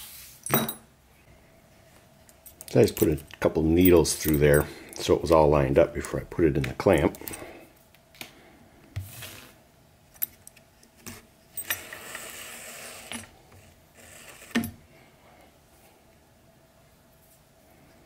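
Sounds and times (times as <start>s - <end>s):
needles and buckle clinking: 2.2s - 5.0s, 10.1s - 10.7s, 11.5s - 12.2s.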